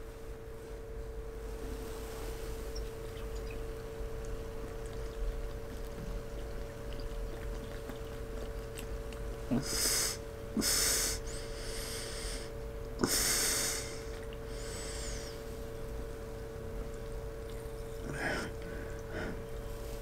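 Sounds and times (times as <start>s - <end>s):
person gulping a drink: 2.8s - 9.9s.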